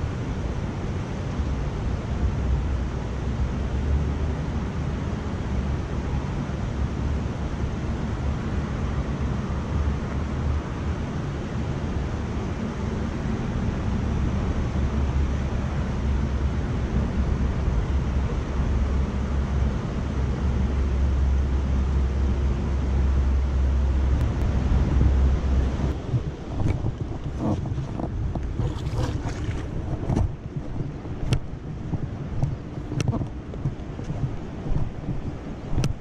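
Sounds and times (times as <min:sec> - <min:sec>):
wind rumbling on microphone: 0:00.0 - 0:36.0.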